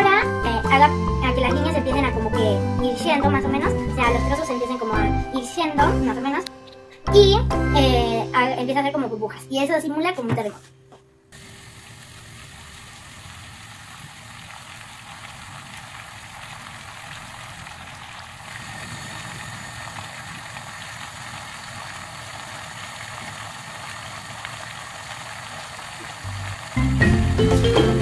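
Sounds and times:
water heating and bubbling: 11.3s - 28.0s.

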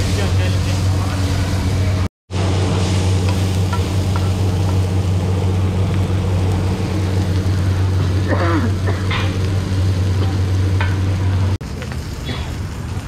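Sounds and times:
chicken sizzling on a griddle: 0.0s - 13.0s
low mechanical hum: 0.0s - 13.0s.

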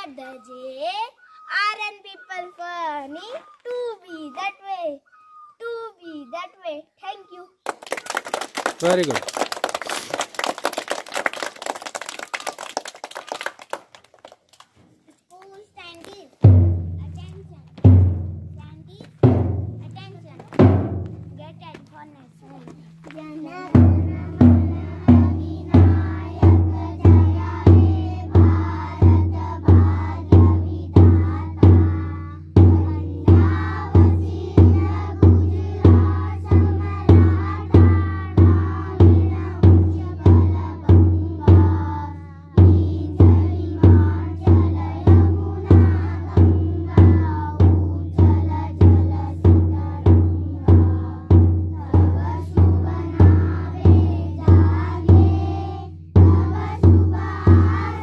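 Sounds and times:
bass drum marching beat: 16.4s - 58.0s
children singing together: 23.3s - 58.0s.

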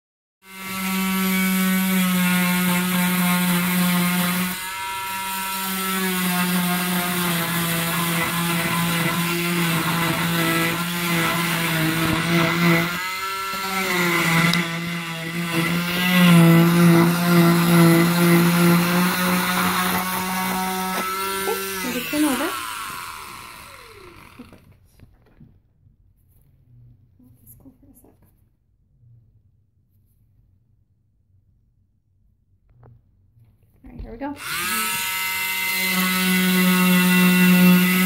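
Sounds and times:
cast saw whining: 0.4s - 24.7s, 34.4s - 38.0s.

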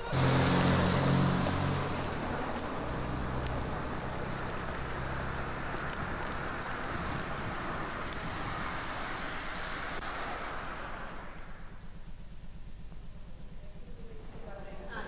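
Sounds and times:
low engine-like hum: 0.0s - 15.0s
wind on microphone: 3.4s - 11.6s.

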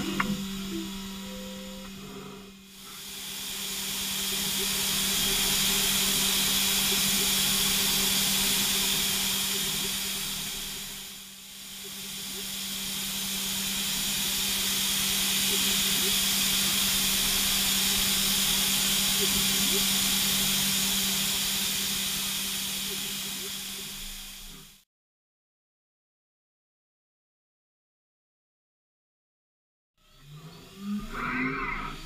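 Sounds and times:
hiss of coolant spray: 0.0s - 24.8s
milling machine spindle hum: 0.0s - 24.8s.

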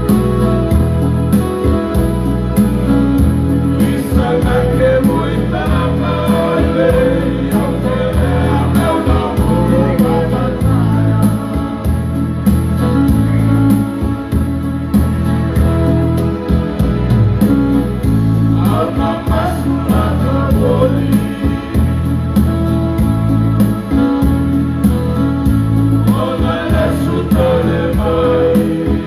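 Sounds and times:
electric keyboard with beat: 0.0s - 29.0s
men's group singing: 3.5s - 13.0s, 18.1s - 22.8s, 25.8s - 29.0s.

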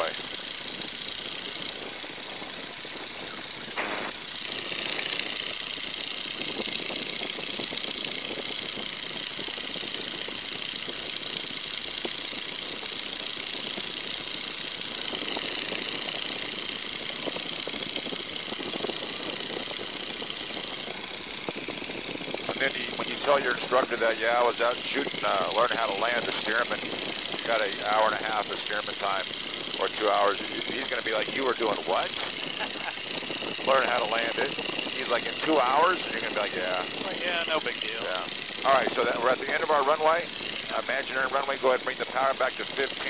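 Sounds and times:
radial aircraft engine running: 0.0s - 43.0s.

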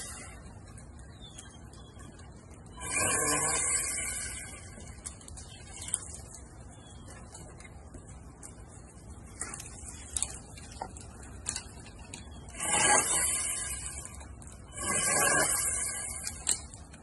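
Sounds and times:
electric pole saw cutting branch: 2.8s - 5.1s, 12.5s - 16.8s.

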